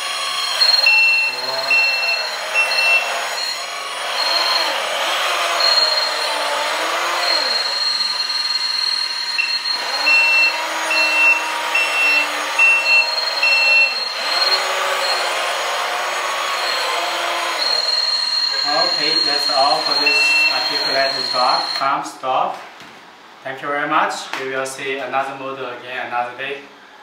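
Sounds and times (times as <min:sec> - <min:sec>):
high-pitched whine: 0:00.0 - 0:15.6, 0:16.5 - 0:22.0
toy truck engine sound: 0:00.0 - 0:21.8
reversing beep: 0:00.6 - 0:04.8, 0:05.6 - 0:06.4, 0:07.2 - 0:15.2, 0:17.6 - 0:21.8.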